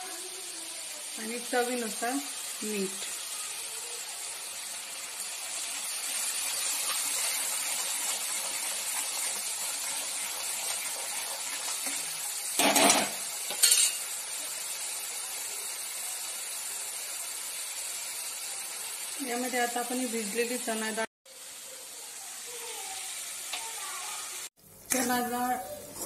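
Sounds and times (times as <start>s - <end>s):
spices sizzling in hot oil: 0.0s - 26.0s
spoon clinking on pan: 12.6s - 14.0s.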